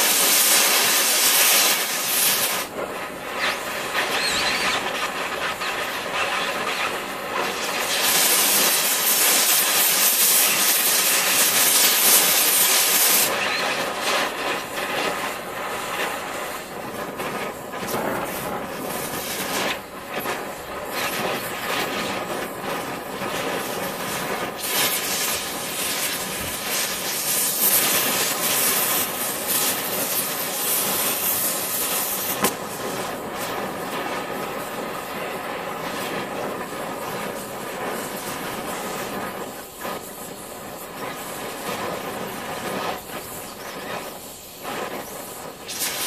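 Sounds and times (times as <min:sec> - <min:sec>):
torch flame hissing: 0:00.0 - 0:46.0.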